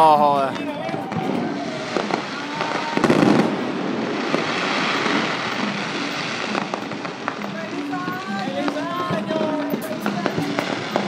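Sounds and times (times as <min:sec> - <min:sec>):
fireworks crackling and popping: 0:00.0 - 0:11.0
loud firework bang: 0:00.8 - 0:07.4.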